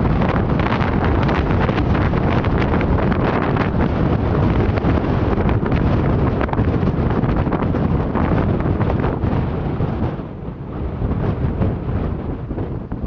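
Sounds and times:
gusty wind buffeting microphone: 0.0 - 13.0.

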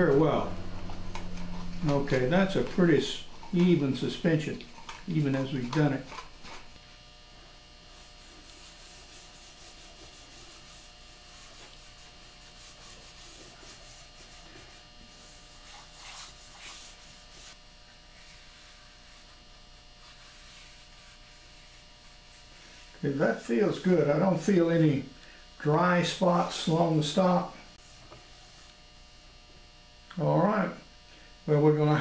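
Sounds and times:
hand rubbing wood: 0.0 - 6.8
steady electrical hum: 0.0 - 32.0.

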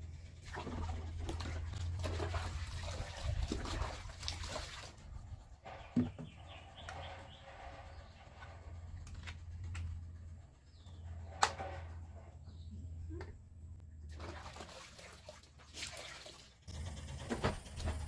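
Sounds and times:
low steady hum: 0.0 - 15.7.

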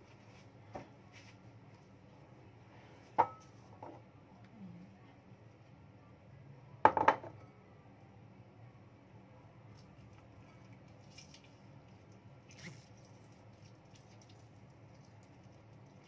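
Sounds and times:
faint low hum: 0.0 - 16.0
ceramic bowl knocking: 6.9 - 7.4.

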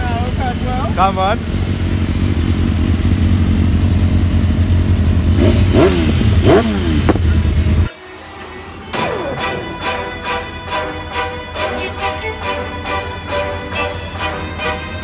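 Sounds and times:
exhaust crack: 0.0 - 7.9
motorcycle engine revving: 0.0 - 9.6.

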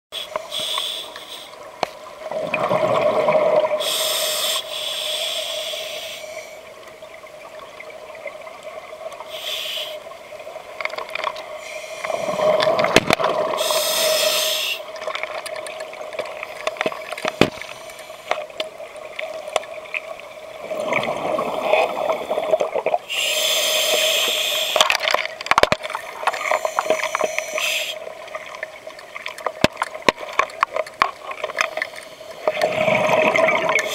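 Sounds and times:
regulator inhale hiss: 0.2 - 1.6, 3.8 - 6.7, 9.3 - 10.1, 11.5 - 12.6, 13.5 - 14.9, 17.5 - 18.5, 23.1 - 24.9, 26.0 - 28.1, 31.4 - 33.0
faint steady hum: 0.2 - 33.9
exhaled bubbles rushing: 2.3 - 3.8, 20.6 - 23.0, 32.4 - 33.9.

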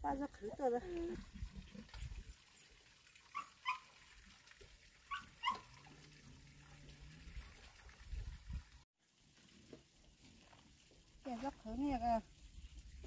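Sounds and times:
animal yelping: 5.1 - 6.0.

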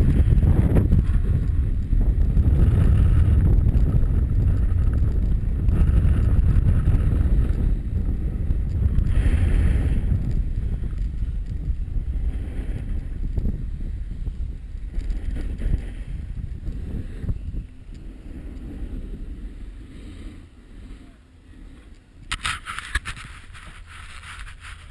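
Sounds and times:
wind buffeting camera: 0.0 - 24.9
snowboard scraping icy snow: 15.0 - 17.3, 21.7 - 24.9.

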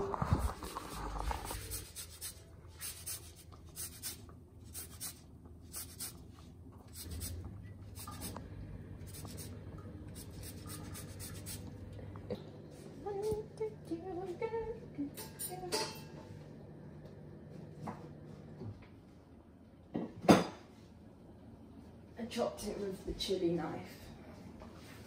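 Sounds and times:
lime scraping on a grater: 0.0 - 6.2, 6.8 - 7.4, 9.1 - 11.6.

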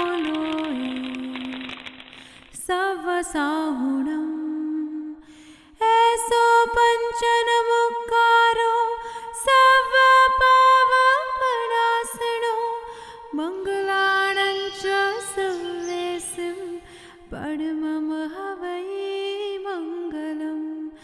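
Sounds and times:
woman singing slow melody: 0.0 - 1.8, 2.5 - 21.0
percussive clicks: 0.0 - 2.7.

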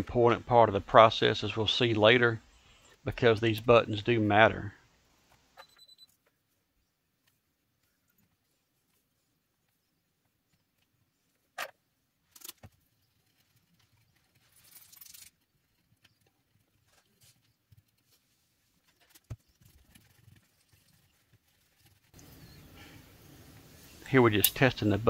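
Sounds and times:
rustle: 16.8 - 25.0.

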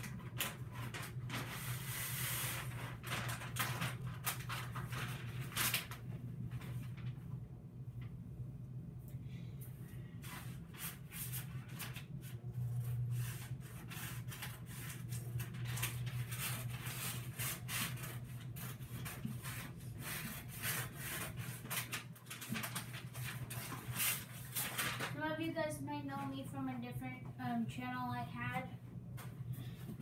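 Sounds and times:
paper rustling: 0.0 - 7.3, 10.2 - 25.2
steady low hum: 4.1 - 21.6, 22.2 - 30.0.

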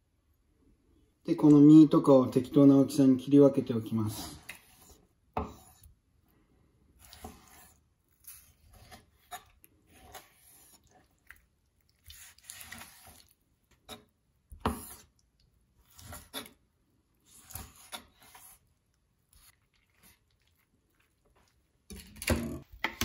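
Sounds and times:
knife slicing fish: 7.0 - 11.0, 12.0 - 15.2, 15.8 - 16.6, 17.2 - 18.7.

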